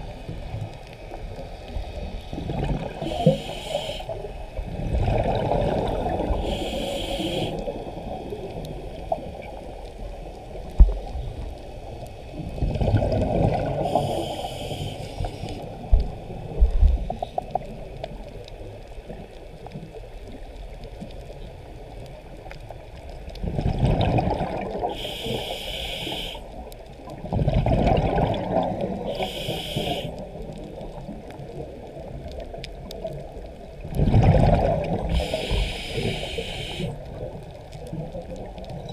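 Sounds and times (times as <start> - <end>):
exhaled bubbles gurgling: 0.0 - 11.6, 12.3 - 38.9
regulator inhale hiss: 3.0 - 4.6, 6.2 - 8.2, 13.8 - 15.8, 24.8 - 26.6, 29.0 - 30.4, 35.0 - 37.2.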